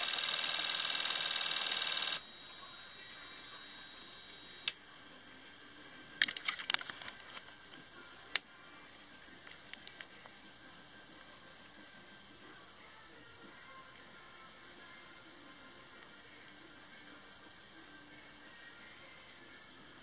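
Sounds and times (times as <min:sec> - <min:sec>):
fuel injectors buzzing: 0:00.0 - 0:02.2.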